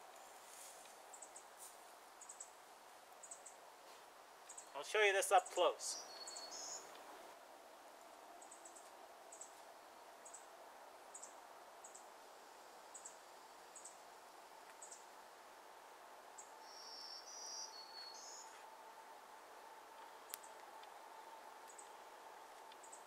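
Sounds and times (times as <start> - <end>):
faint high-pitched chirps: 5.9 - 6.9, 16.4 - 18.6.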